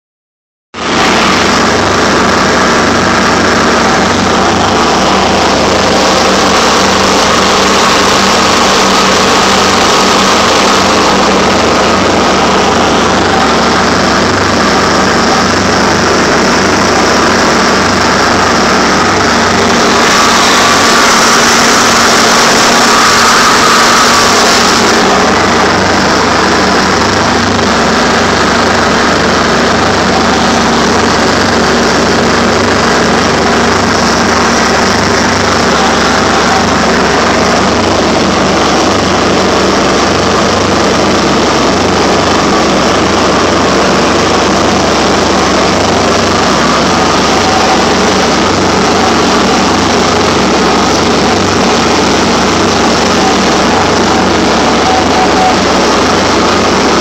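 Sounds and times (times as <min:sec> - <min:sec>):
tractor diesel engine running: 0:00.7 - 0:57.0.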